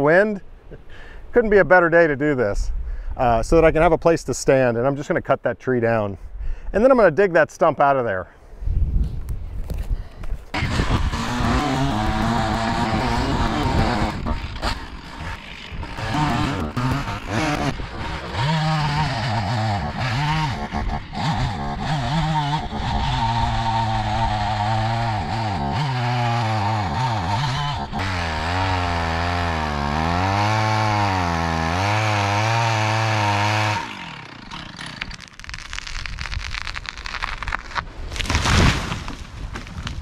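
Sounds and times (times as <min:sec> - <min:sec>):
chainsaw cutting tree trunk: 0:10.5 - 0:40.0.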